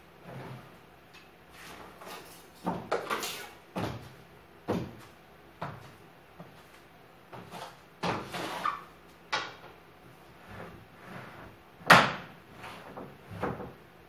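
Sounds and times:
broom scraping and knocking: 7.4s - 8.9s.

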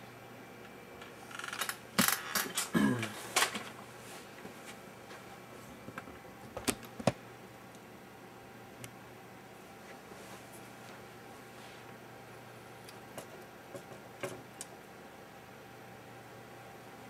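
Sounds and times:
short creak falling in pitch: 1.3s - 2.6s.

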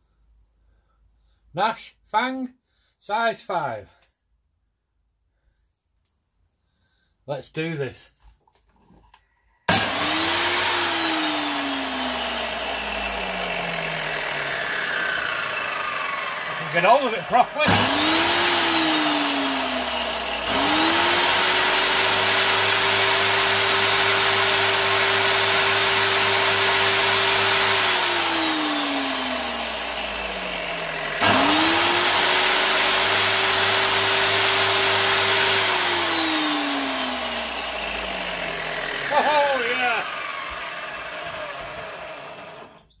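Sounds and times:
angle grinder whine: 9.7s - 43.0s.

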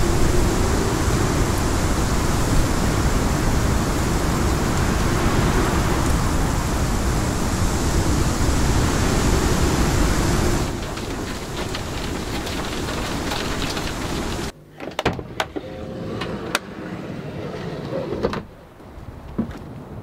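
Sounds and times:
heavy rain rushing: 0.0s - 14.5s
rain drops on van windshield: 0.0s - 14.5s.

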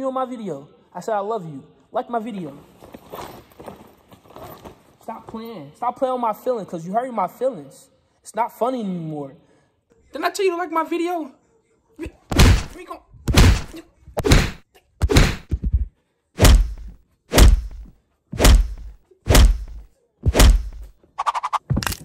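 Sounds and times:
fist pounding thumps: 12.3s - 20.9s.

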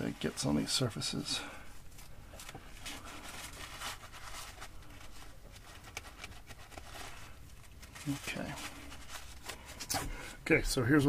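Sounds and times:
paper towel scrubbing: 2.7s - 10.2s.

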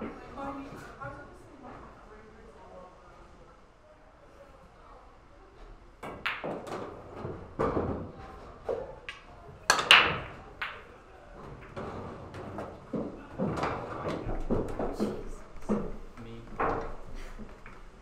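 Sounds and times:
cue ball cracking into balls: 6.0s - 8.1s, 9.0s - 10.9s
pool balls clicking: 6.0s - 17.9s.

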